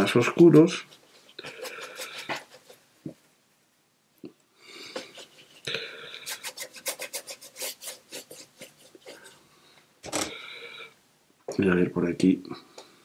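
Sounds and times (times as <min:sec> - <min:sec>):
brush scrubbing paper: 0:00.5 - 0:02.9, 0:04.9 - 0:09.4.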